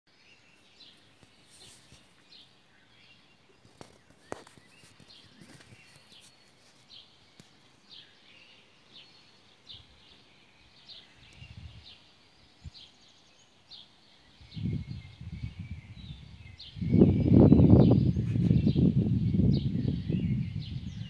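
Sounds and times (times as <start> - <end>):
bird chirping: 0.1 - 21.0
faint calls of other birds: 0.1 - 21.0
low rumbles on microphone: 14.4 - 21.0.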